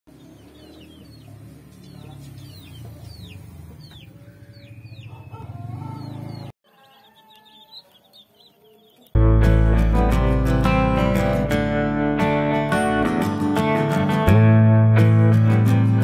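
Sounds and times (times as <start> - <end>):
chicks peeping: 0.1 - 9.2.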